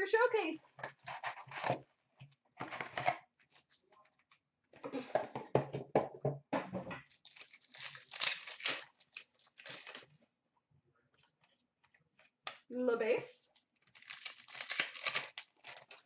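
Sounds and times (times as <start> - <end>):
foil packs crinkling: 7.0 - 10.2, 13.8 - 16.0
cardboard box tearing: 13.9 - 16.0.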